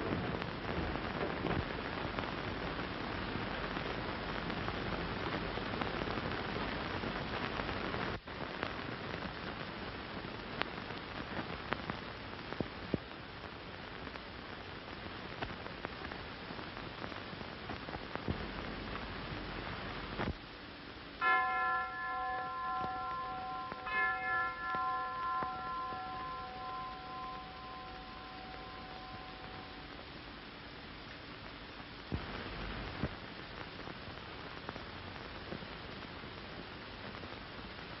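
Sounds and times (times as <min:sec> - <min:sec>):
steady rushing hiss: 0:00.0 - 0:38.0
bell chiming: 0:21.2 - 0:30.0.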